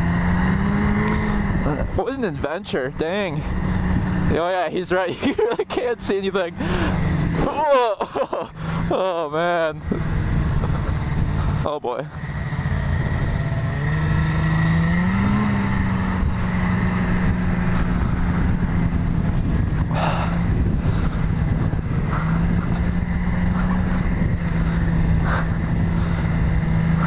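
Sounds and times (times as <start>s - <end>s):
snowmobile engine under load: 0.0s - 27.0s.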